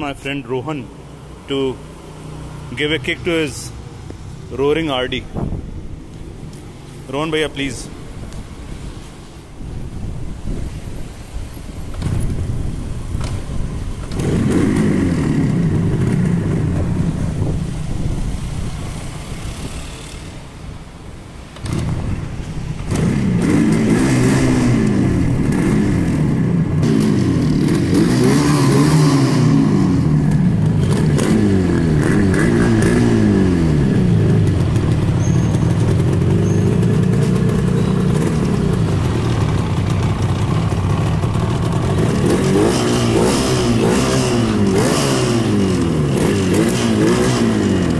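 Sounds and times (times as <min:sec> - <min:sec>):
motorcycle engine revving: 0:14.0 - 0:17.6, 0:21.6 - 0:47.9.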